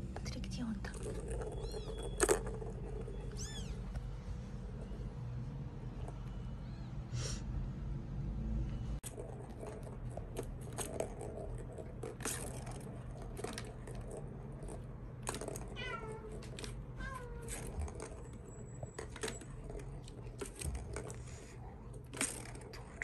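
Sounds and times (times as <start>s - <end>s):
plastic balls rattling in track: 0.2s - 3.8s, 9.0s - 23.0s
kitten meowing: 3.3s - 3.8s.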